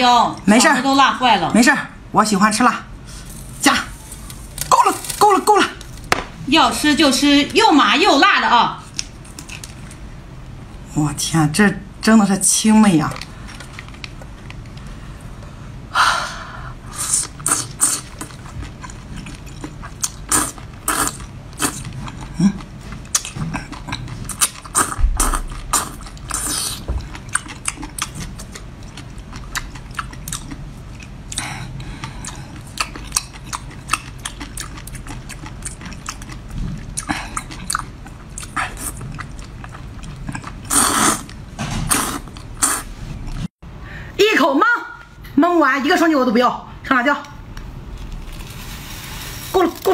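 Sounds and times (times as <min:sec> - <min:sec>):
wet chewing clicks and smacks: 0:21.1 - 0:41.4
person slurping: 0:40.6 - 0:41.3, 0:41.9 - 0:43.5.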